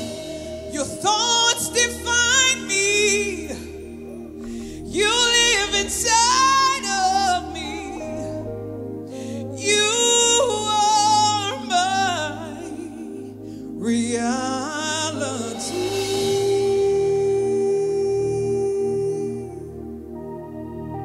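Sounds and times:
woman singing: 0.0 - 8.5, 9.5 - 19.8
sustained backing chords: 0.0 - 21.0.

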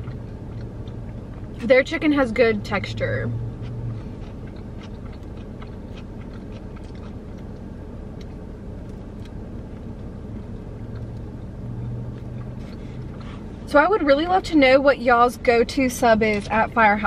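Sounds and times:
chewing sandwich: 0.0 - 1.6, 3.5 - 13.5
low hum inside car: 0.0 - 17.0.

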